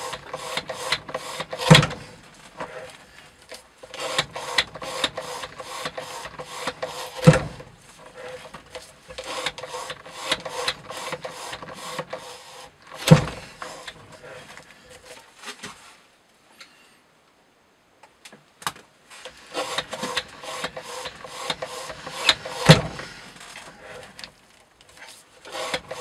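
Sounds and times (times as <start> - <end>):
scraping clattering rig strokes: 19.1 - 24.3, 24.9 - 26.0.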